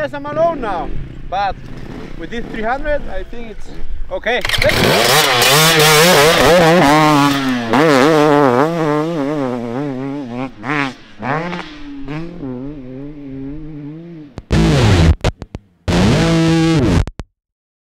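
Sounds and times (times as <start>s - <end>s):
dirt bike engine revving: 0.3s - 3.1s, 4.4s - 17.0s
distorted electric guitar music: 14.4s - 17.3s.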